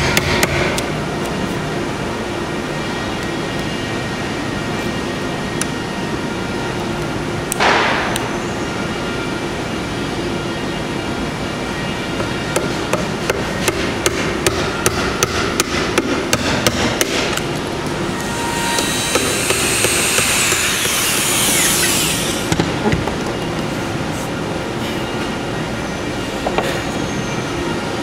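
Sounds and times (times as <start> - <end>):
chisel hissing scrape: 18.2 - 22.4.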